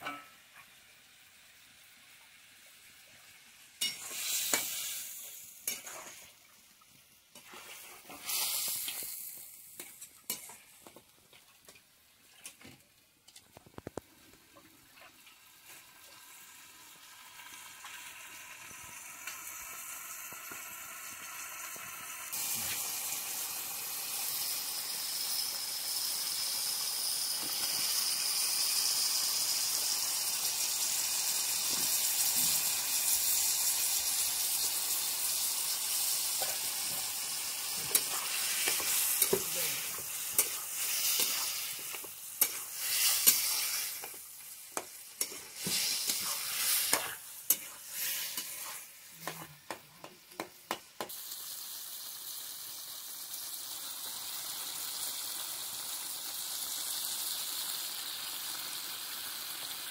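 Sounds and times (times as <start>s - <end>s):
curry sizzling in pan: 0.0s - 59.9s
metal spatula scraping pan: 37.8s - 49.5s.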